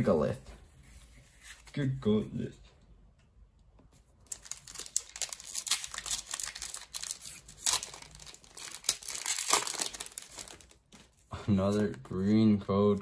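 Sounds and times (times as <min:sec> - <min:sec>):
foil wrapper tearing and crinkling: 0:04.2 - 0:11.0.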